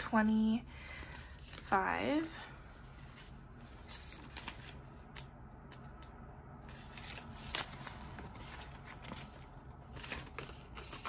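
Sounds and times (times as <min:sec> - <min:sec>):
banknotes rustling: 0:06.6 - 0:11.0.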